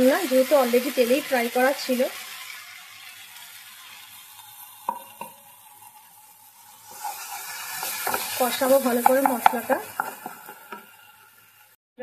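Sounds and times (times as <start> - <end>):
paste sizzling in oil: 0.0 - 11.8
utensil knocking against pan: 7.8 - 10.9.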